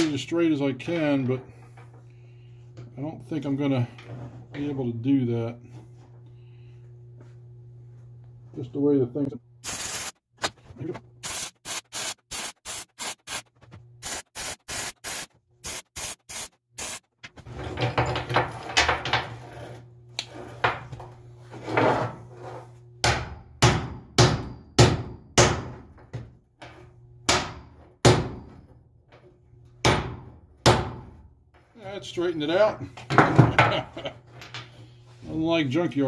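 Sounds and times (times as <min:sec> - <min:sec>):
welder tack bursts: 0:11.2 - 0:17.1
scraping and knocking on metal: 0:17.3 - 0:22.8.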